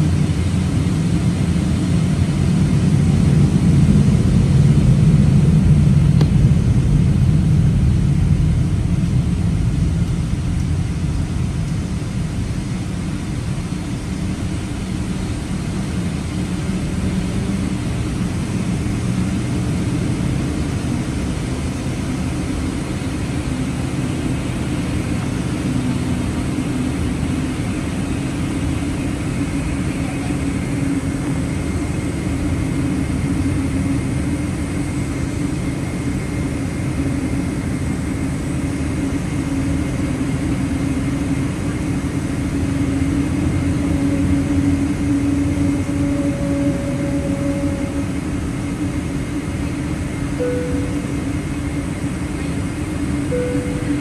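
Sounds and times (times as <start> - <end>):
jet engines low rumble: 0.0 - 54.0
faint high whine: 11.7 - 54.0.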